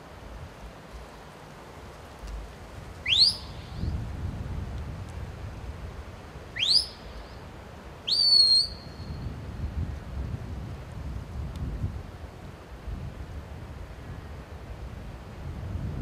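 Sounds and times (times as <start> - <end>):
rising whistles: 3.0 - 3.9, 6.5 - 7.4, 8.0 - 9.2.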